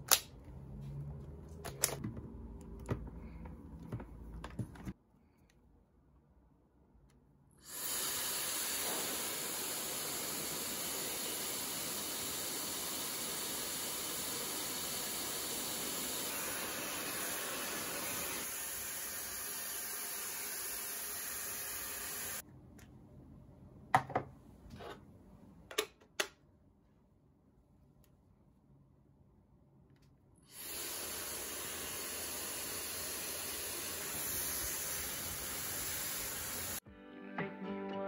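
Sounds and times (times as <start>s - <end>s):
hair dryer blowing air: 7.7s - 22.4s, 30.5s - 36.8s.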